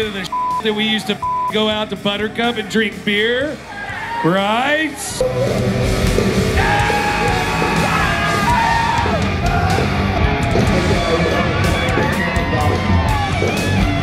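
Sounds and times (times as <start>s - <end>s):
rock music with yelled vocal: 3.5s - 14.0s.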